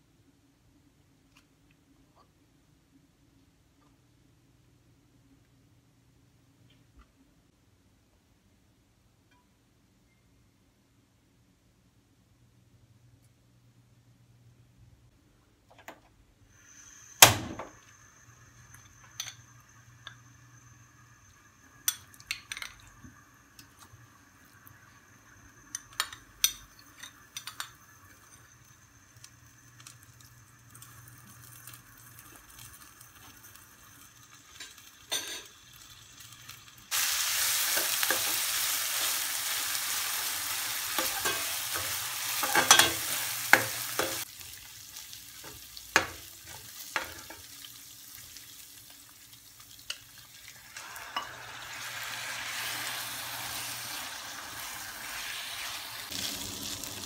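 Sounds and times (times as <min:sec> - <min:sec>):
paste sizzling in frying pan: 0:16.5 - 0:57.0.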